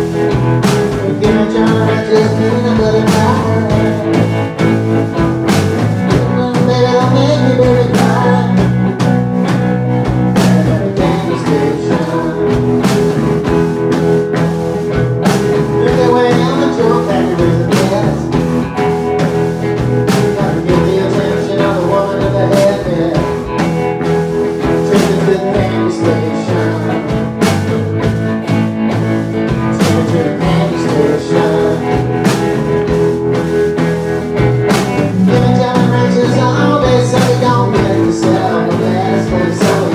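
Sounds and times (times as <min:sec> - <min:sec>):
drum kit with cymbals: 0:00.0 - 0:39.9
electric bass: 0:00.0 - 0:39.9
electric guitar: 0:00.0 - 0:39.9.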